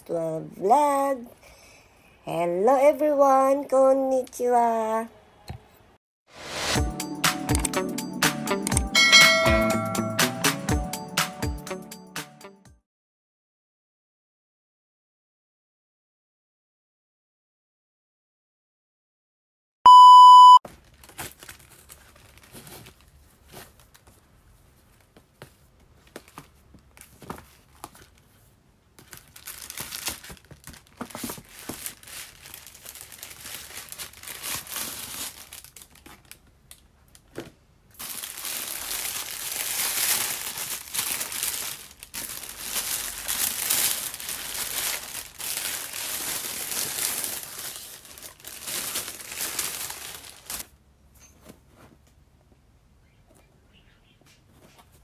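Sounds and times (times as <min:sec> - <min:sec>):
electronic beep: 0:19.9 - 0:20.6
tissue paper crinkling: 0:20.7 - 0:25.1, 0:29.0 - 0:36.4, 0:38.0 - 0:50.7.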